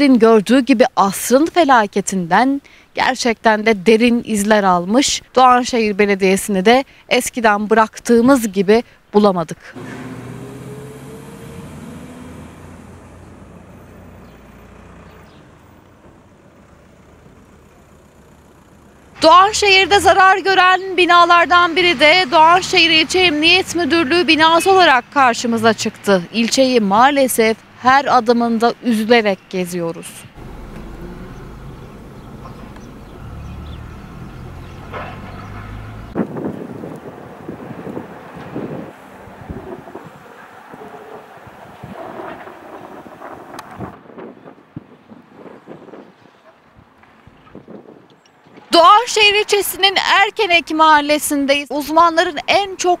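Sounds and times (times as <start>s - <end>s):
street noise: 0.0s - 53.0s
vehicle engine running: 9.8s - 20.1s, 30.4s - 36.2s.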